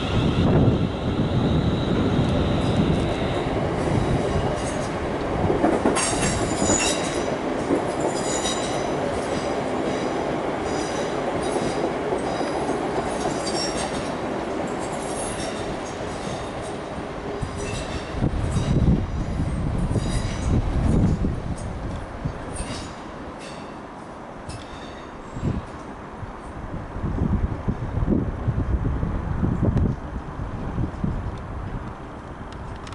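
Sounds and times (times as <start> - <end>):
train wheels rumbling on rails: 0.0 - 32.9.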